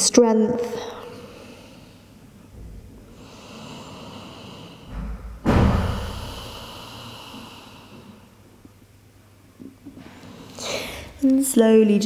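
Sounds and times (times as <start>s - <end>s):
loud out-breath: 0.8s - 2.3s, 3.0s - 8.4s, 10.0s - 11.2s
person breathing in: 0.8s - 2.3s, 3.0s - 8.4s, 10.0s - 11.2s.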